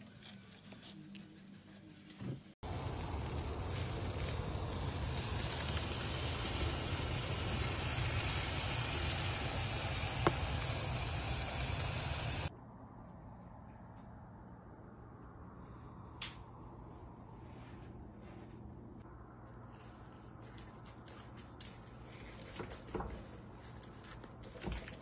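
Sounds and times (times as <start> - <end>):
steak sizzling: 2.6 - 12.5.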